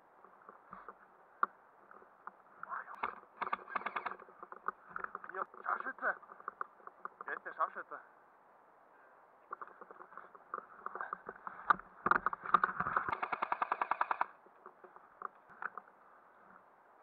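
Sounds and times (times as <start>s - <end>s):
airsoft rifle shots: 13.0s - 14.3s.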